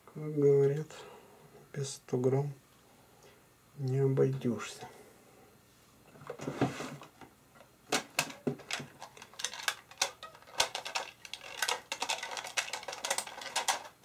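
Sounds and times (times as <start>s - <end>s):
small hard objects clattering: 8.0s - 14.0s.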